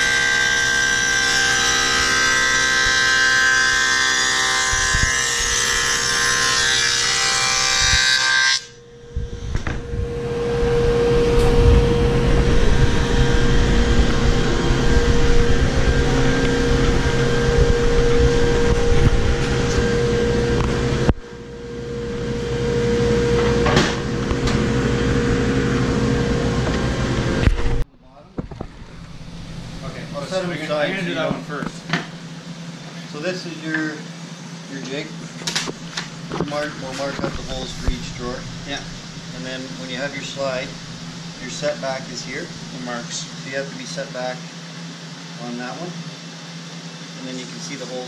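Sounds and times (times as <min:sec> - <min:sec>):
table saw whining: 0:00.0 - 0:27.8
low machine hum: 0:00.0 - 0:48.0.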